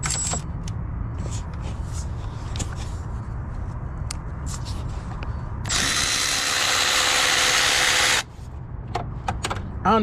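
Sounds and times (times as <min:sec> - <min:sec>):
electric ratchet motor whirring: 0:05.6 - 0:08.3.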